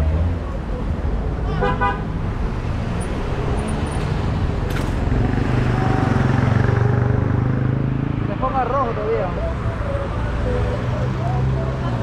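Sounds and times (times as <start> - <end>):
cars passing: 0.0 - 12.0
low road rumble: 0.0 - 12.0
motorcycle passing: 2.5 - 9.5.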